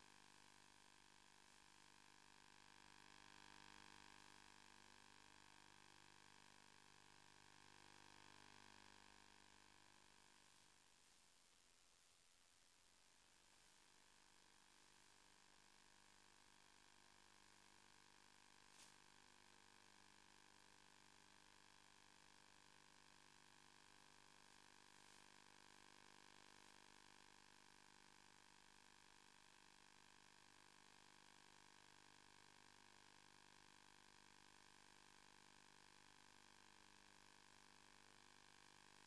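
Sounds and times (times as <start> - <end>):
electrical hiss and hum: 8.9 - 15.4, 16.9 - 19.2.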